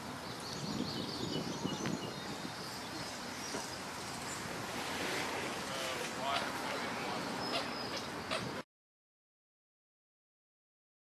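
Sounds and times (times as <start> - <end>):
steady background hiss: 0.0 - 8.6.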